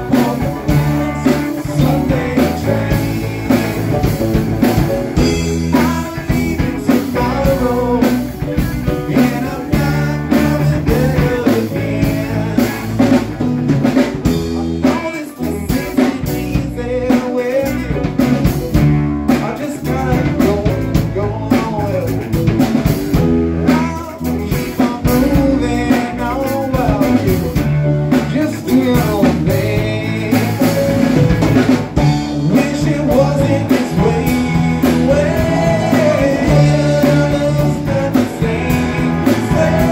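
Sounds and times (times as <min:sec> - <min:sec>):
harmonica lead line: 0:00.0 - 0:18.7, 0:28.3 - 0:39.9
blues-rock band playing: 0:00.0 - 0:39.9.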